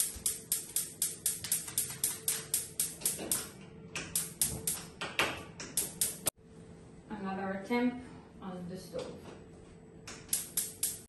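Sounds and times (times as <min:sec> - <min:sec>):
oven spark igniter clicking: 0:00.0 - 0:04.9, 0:05.6 - 0:06.3, 0:10.1 - 0:11.0.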